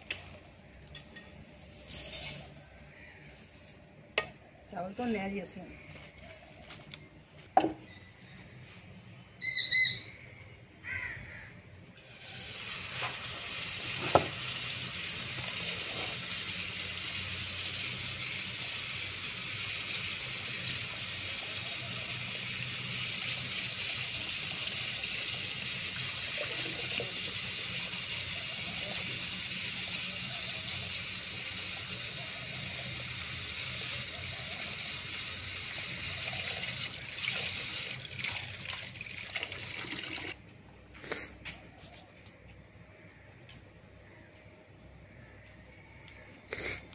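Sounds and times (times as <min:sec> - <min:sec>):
tap water running into bowl: 0:12.2 - 0:40.4.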